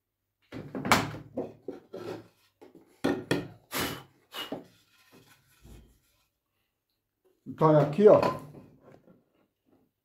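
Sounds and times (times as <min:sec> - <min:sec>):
wood scraping on wood: 0:01.5 - 0:02.8, 0:04.4 - 0:06.3.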